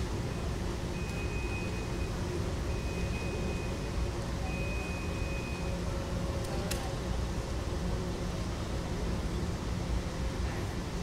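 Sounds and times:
low hum and rumble of hall: 0:00.0 - 0:11.0
high electronic beep: 0:00.9 - 0:05.7.

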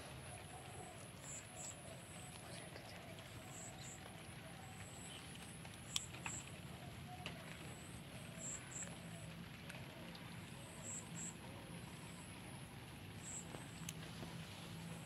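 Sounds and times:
steady low hiss: 0:00.0 - 0:15.0
soft ticks: 0:00.6 - 0:06.6, 0:13.2 - 0:14.9.

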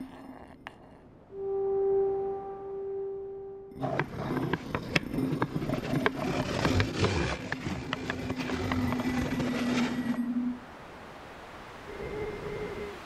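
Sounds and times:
low steady tone: 0:00.0 - 0:03.8
held horn-like note: 0:01.3 - 0:03.8.

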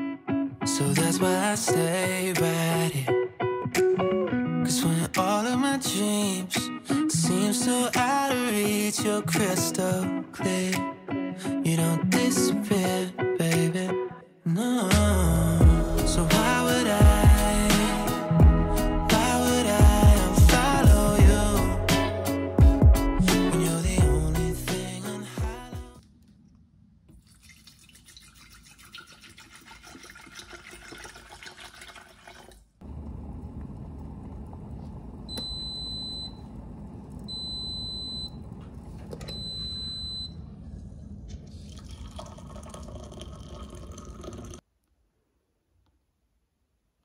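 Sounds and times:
water sound: 0:27.1 - 0:32.7, 0:41.3 - 0:44.6
kettle heating water: 0:29.5 - 0:40.5
kettle control panel beeps: 0:35.3 - 0:36.6, 0:37.2 - 0:38.5, 0:39.2 - 0:40.4.

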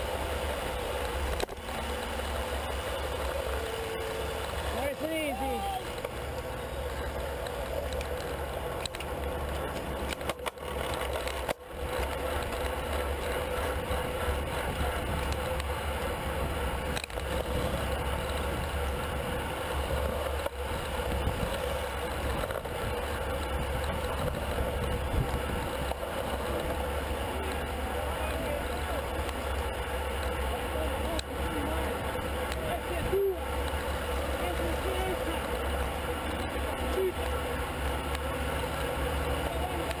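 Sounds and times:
road and tyre noise: 0:00.0 - 0:40.0.

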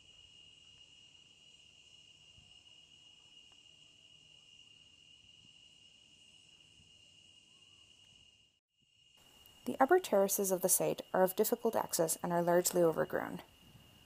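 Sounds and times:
soft outdoor ambience hiss: 0:09.0 - 0:14.0.

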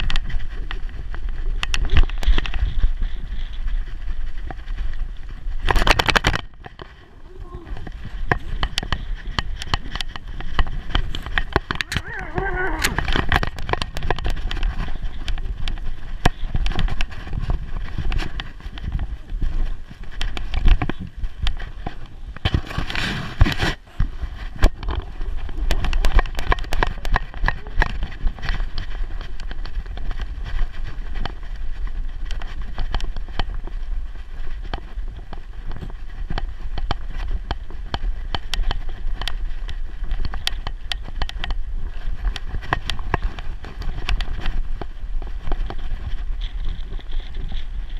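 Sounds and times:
camera jostling and rubbing: 0:00.0 - 0:47.9.

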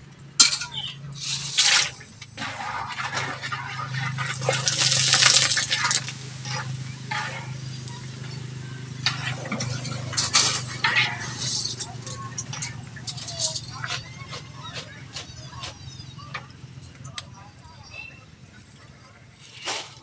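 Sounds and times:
oil sizzling and bubbling: 0:00.1 - 0:17.0
wire strainer stirring: 0:01.2 - 0:16.1.

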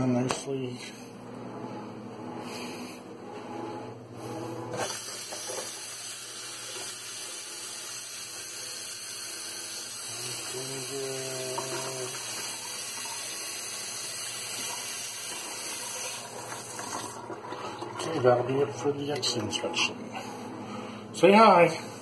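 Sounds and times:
faucet turned on: 0:04.8 - 0:18.4
water running into sink: 0:04.8 - 0:19.6.

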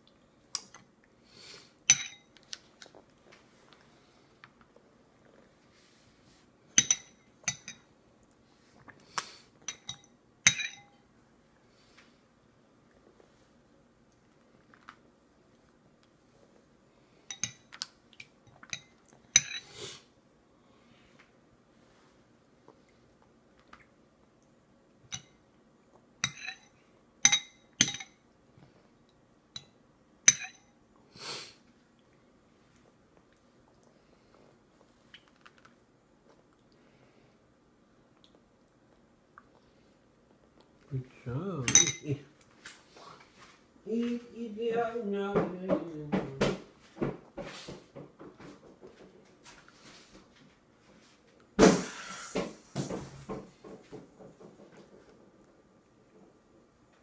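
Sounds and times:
spoon clinking against bowl: 0:01.9 - 0:02.3, 0:09.7 - 0:10.9, 0:30.3 - 0:30.7, 0:41.7 - 0:42.1.

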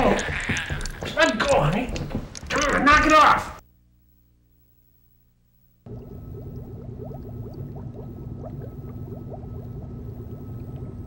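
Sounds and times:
liquid bubbling: 0:00.0 - 0:01.3, 0:05.9 - 0:11.0
low steady hum: 0:03.6 - 0:11.0.

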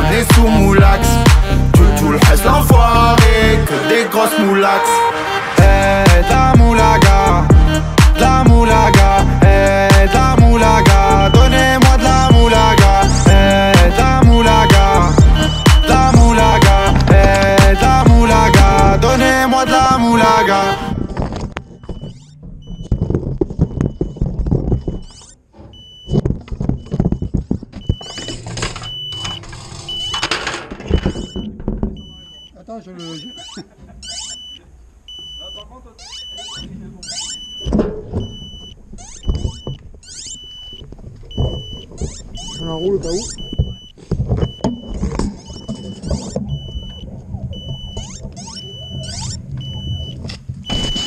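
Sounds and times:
buzzer beeping: 0:00.0 - 0:51.0
handling knocks and clicks: 0:21.2 - 0:32.4.

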